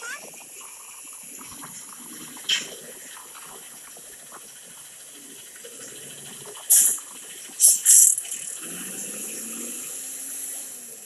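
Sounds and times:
street noise through phone speaker: 0.0s - 9.8s
short hiss: 6.7s - 8.5s.

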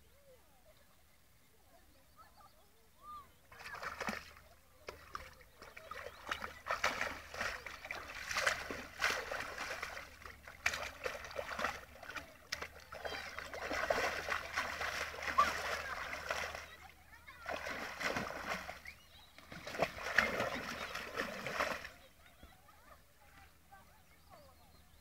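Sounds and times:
dog splashing in shallow water: 3.5s - 22.4s.

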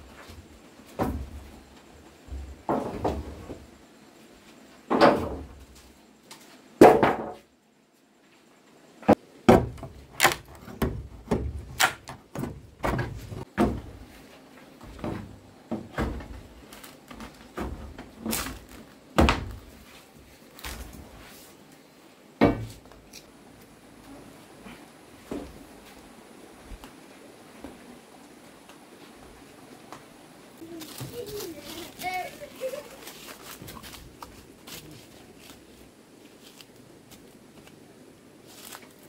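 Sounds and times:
knocks and thuds on wood: 0.9s - 1.5s, 2.3s - 3.6s, 6.8s - 7.5s, 9.1s - 14.0s, 14.8s - 16.5s, 17.1s - 19.7s, 22.4s - 22.9s.

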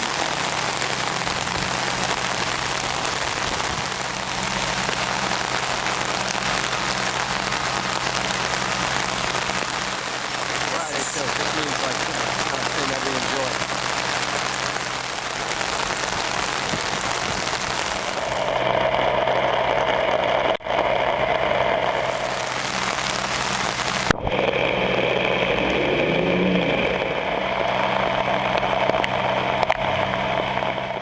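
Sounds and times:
heavy rain falling: 0.0s - 31.0s
low engine hum of vehicles: 0.0s - 31.0s.

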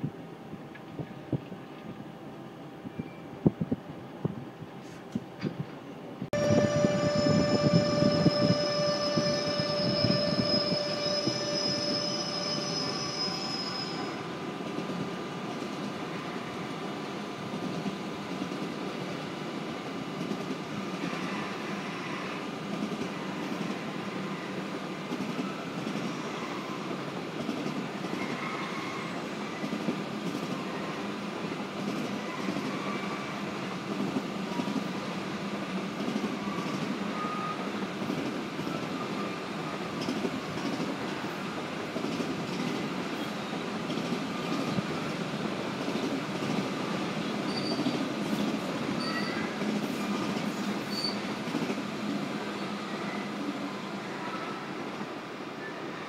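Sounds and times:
train wheels rumbling on rails: 2.9s - 53.2s
high steady whine: 6.4s - 12.0s
wheel squeals: 47.4s - 48.0s, 49.0s - 49.5s, 50.8s - 51.3s.

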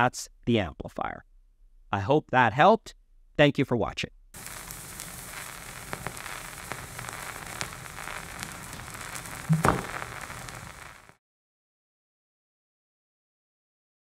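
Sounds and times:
vinyl record crackle and hiss: 4.4s - 11.2s.

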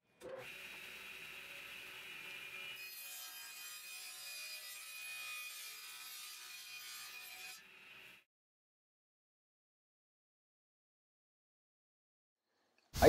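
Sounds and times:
table saw blade whine: 0.2s - 8.3s
saw cutting through plywood: 0.4s - 8.3s.

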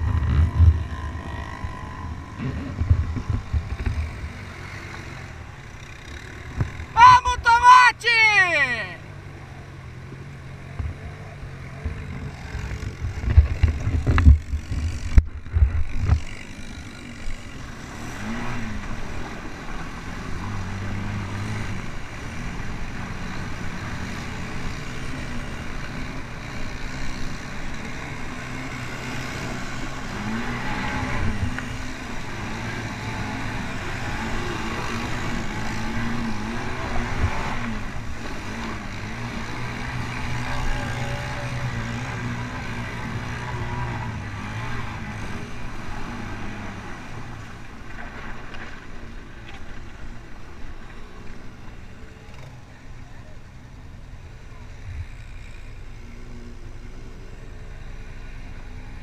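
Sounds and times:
quad bike engine revving: 0.0s - 7.4s, 8.6s - 47.7s.

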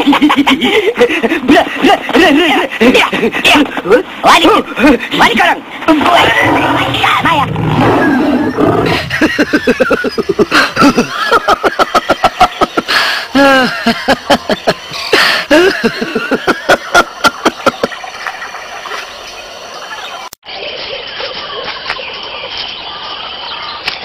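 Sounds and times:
cartoon voices giggling and chattering: 0.0s - 18.2s.

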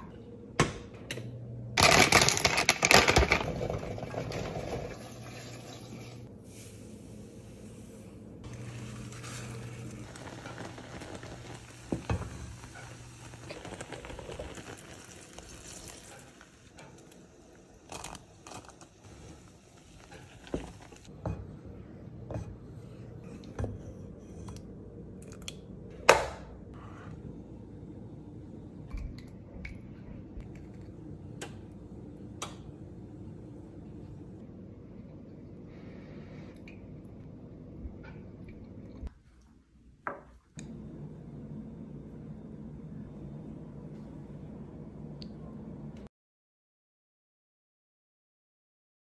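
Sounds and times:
steady hiss of cooking: 4.6s - 23.2s.

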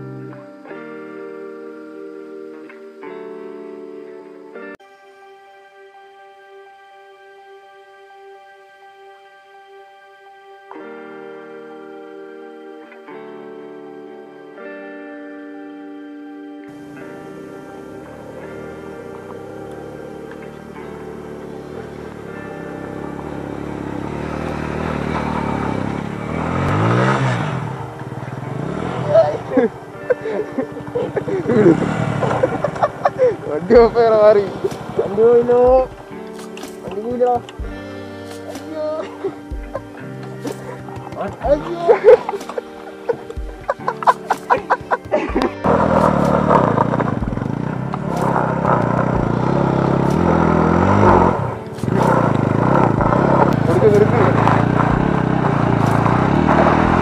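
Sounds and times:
motorcycle engine revving: 16.7s - 57.0s.

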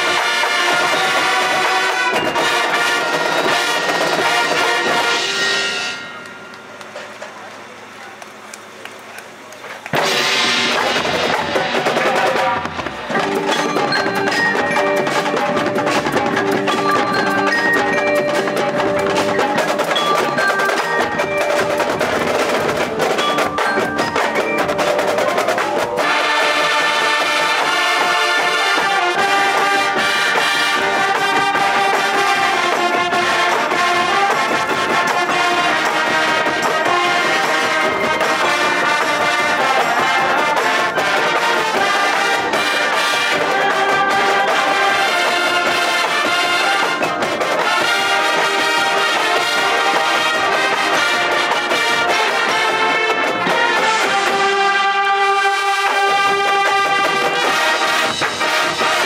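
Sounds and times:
marching band playing: 0.0s - 59.0s
marimbas and mallet percussion: 10.0s - 30.2s.

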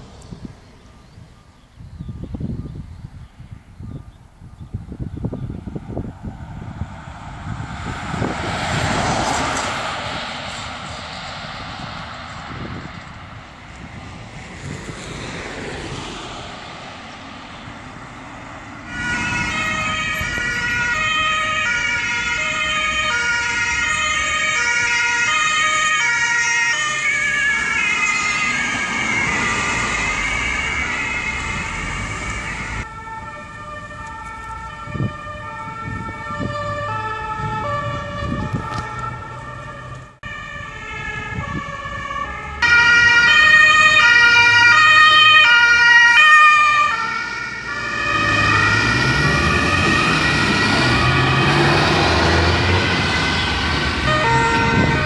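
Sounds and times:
passing traffic: 0.0s - 55.0s
two-tone ambulance sirens: 4.8s - 55.0s.

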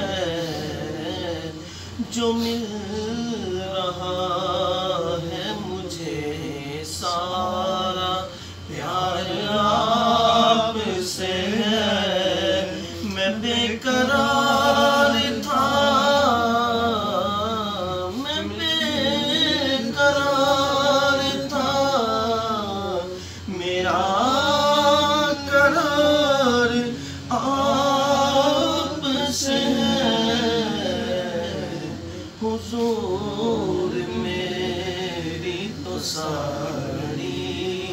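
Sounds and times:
men singing devotional song: 0.0s - 37.9s.

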